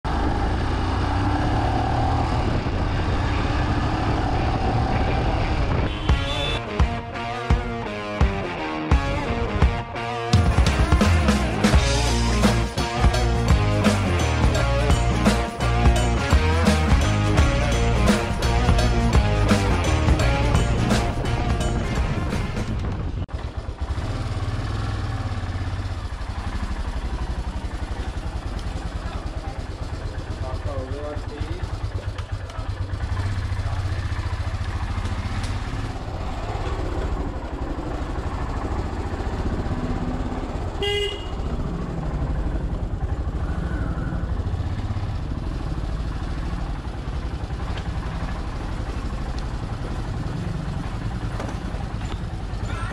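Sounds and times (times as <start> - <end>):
motorcycle engine running: 0.0 - 9.8, 10.4 - 52.9
wind rush on microphone: 2.2 - 5.9, 21.8 - 23.3
music with drum hits: 6.1 - 22.7.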